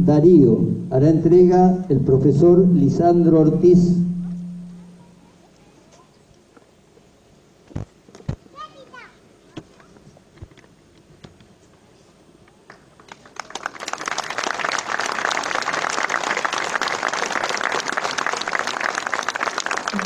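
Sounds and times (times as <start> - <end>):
audience clapping: 12.6 - 20.0.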